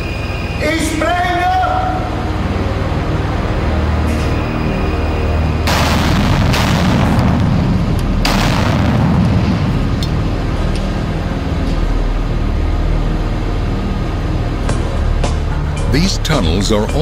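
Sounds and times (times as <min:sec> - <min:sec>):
low background music: 0:00.0 - 0:17.0
deep rumbling echo: 0:05.2 - 0:17.0
explosive blasts: 0:05.6 - 0:10.0.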